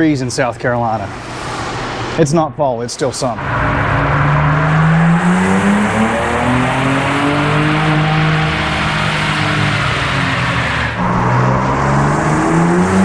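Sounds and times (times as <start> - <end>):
engine revving on dyno: 3.3 - 13.0.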